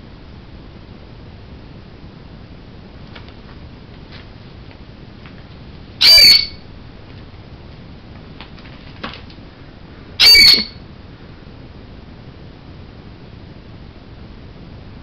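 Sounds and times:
parrot screaming: 0:06.0 - 0:06.6, 0:10.2 - 0:10.8.

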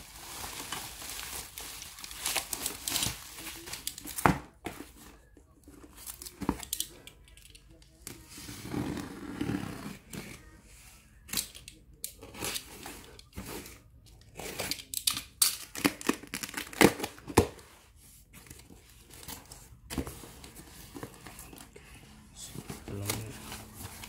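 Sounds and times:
tape tearing: 0:14.4 - 0:17.5.

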